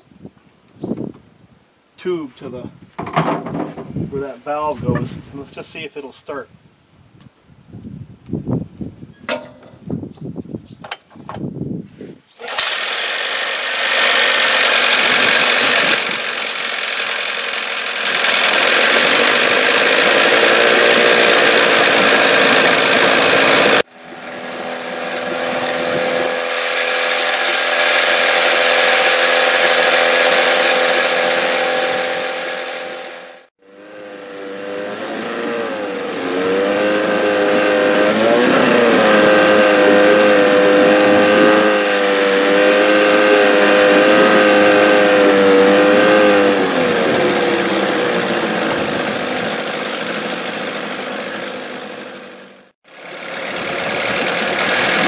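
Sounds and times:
outboard motor running: 12.4s - 55.0s.

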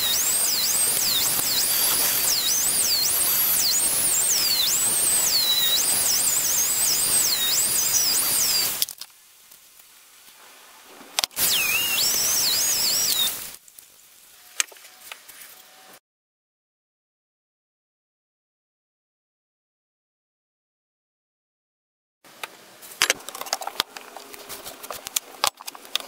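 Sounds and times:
rotary tool grinding steel: 0.0s - 8.8s, 11.4s - 13.6s.

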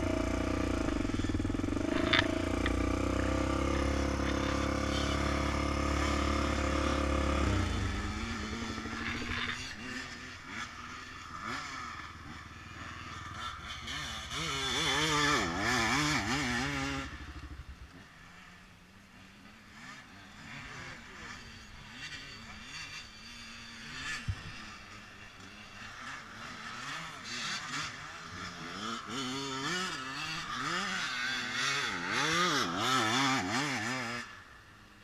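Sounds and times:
quad engines revving: 0.0s - 35.0s.

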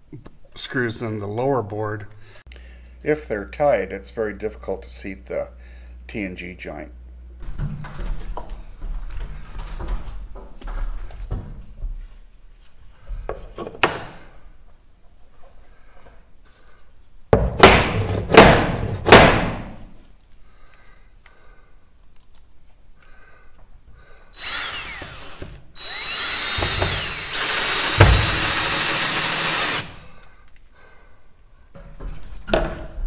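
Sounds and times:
cordless drill driving screw: 24.4s - 30.1s.

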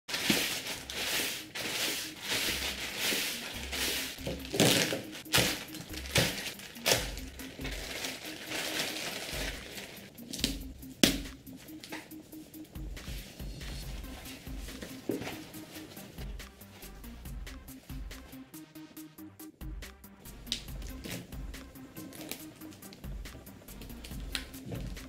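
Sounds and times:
plastic bag crinkling: 0.1s - 10.5s
foam wrap rustling: 0.1s - 18.4s, 20.4s - 25.0s
faint background music: 0.1s - 25.0s.

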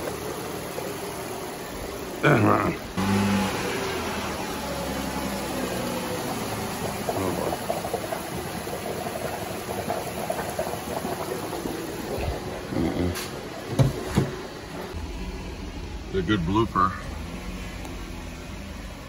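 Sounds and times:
coolant bubbling and gurgling: 0.0s - 3.0s, 3.7s - 15.0s.

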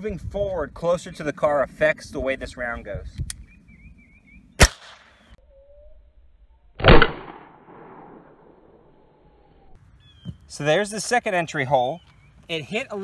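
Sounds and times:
rifle shots: 4.6s - 5.1s, 6.8s - 8.7s.

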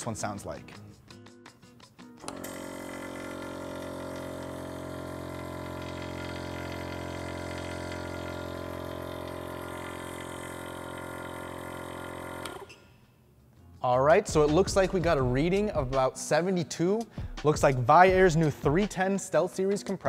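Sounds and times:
air compressor humming: 2.2s - 12.7s.

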